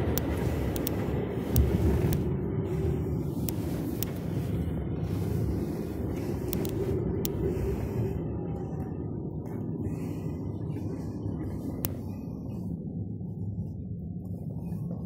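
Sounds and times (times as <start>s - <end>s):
sharp ticks: 0.0s - 2.3s, 6.5s - 7.4s
tyre and road noise in car: 0.0s - 9.8s.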